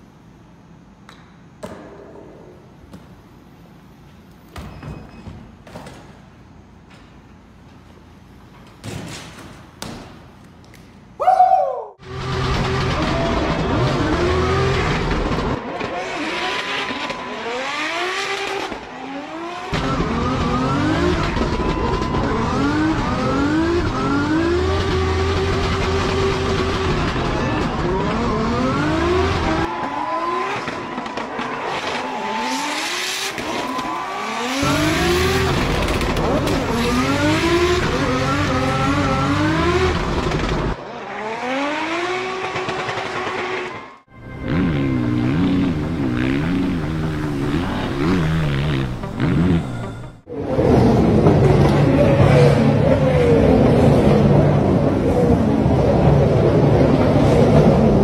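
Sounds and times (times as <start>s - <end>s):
tyre squeal: 4.6s - 5.5s
car engine revving hard: 12.0s - 30.7s, 34.2s - 43.7s.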